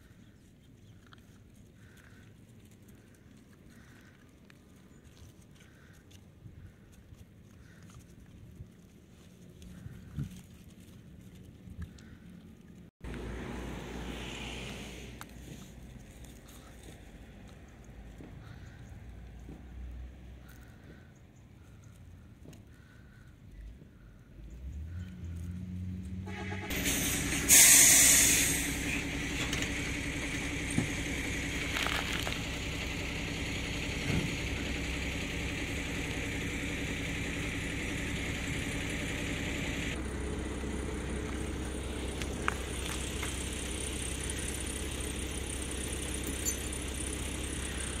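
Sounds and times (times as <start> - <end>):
loud hiss: 26.7 - 29.1.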